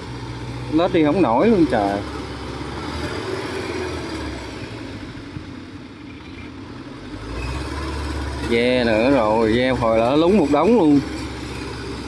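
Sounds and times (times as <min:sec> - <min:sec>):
small tracked vehicle engine labouring: 0:00.0 - 0:12.0.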